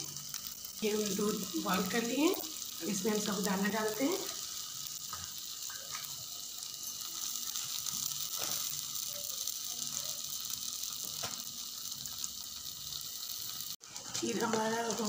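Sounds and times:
sizzling hiss from stove: 0.0s - 15.0s.

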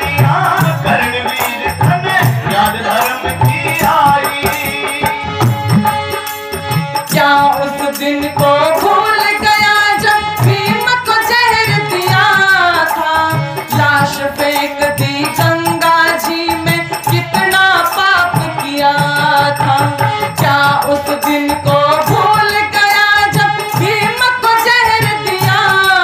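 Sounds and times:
harmonium: 0.0s - 26.0s
woman singing: 7.0s - 26.0s.

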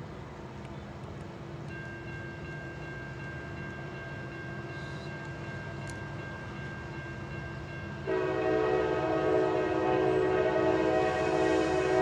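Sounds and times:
train rumble: 0.0s - 12.0s
locomotive air horn: 8.1s - 12.0s.

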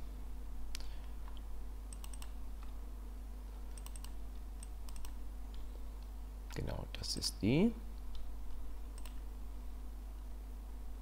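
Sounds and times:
mouse and keyboard clicks: 1.3s - 2.8s, 3.8s - 5.6s.

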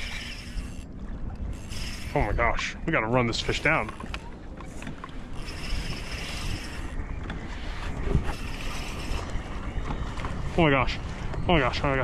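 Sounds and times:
thin high whir: 0.0s - 0.9s, 1.5s - 2.4s, 5.3s - 7.0s, 7.8s - 9.6s
water moving against kayak: 0.0s - 12.0s
wind buffeting microphone: 0.0s - 12.0s.

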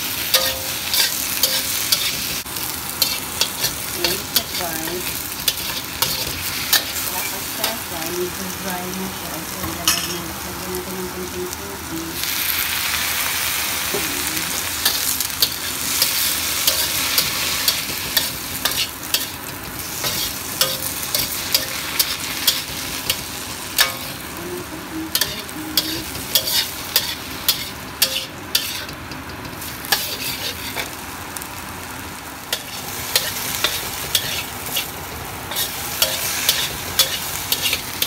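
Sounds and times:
vegetables sizzling in a wok: 0.0s - 38.0s
metal spatula scraping a pan: 0.3s - 2.2s, 14.9s - 23.2s, 25.1s - 30.9s, 32.6s - 34.9s, 35.5s - 37.9s.

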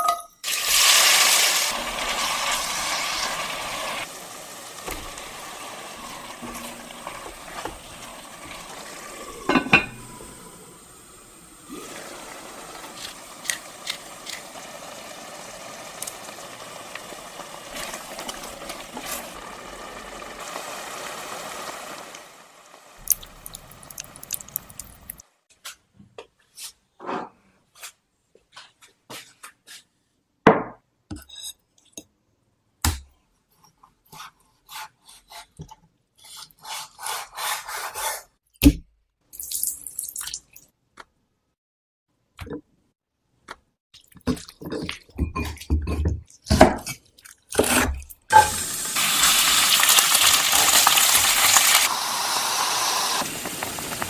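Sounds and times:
food bubbling in a pot: 14.5s - 25.2s.

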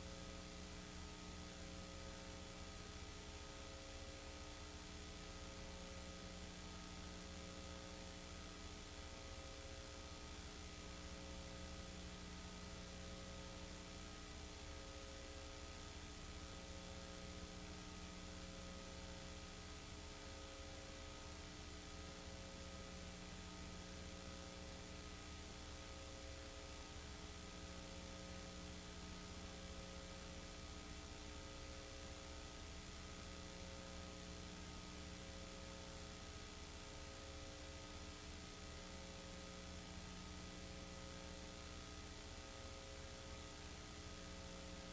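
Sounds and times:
electrical mains hum with hiss: 0.0s - 44.9s.

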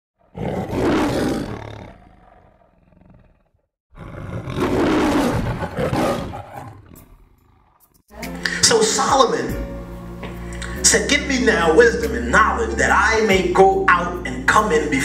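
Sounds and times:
lion roaring: 0.2s - 8.1s.

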